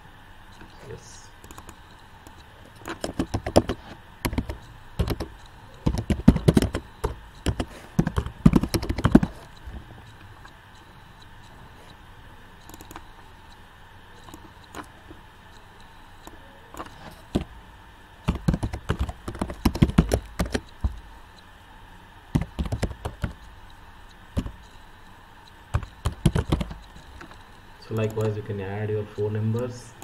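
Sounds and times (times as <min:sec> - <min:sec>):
computer keyboard typing: 0:01.4 - 0:10.6, 0:12.6 - 0:13.1, 0:14.2 - 0:15.2, 0:16.2 - 0:17.5, 0:18.2 - 0:21.1, 0:22.3 - 0:24.8, 0:25.4 - 0:28.4.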